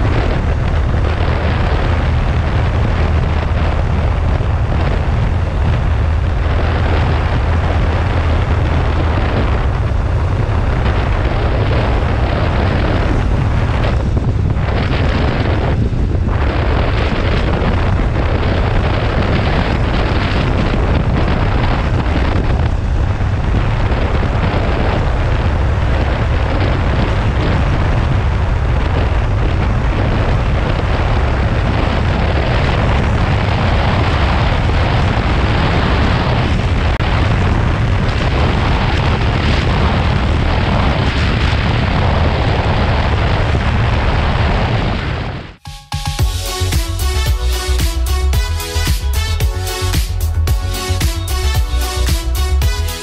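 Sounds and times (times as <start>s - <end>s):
wind rumble on microphone: 0.0s - 45.6s, 46.2s - 53.0s.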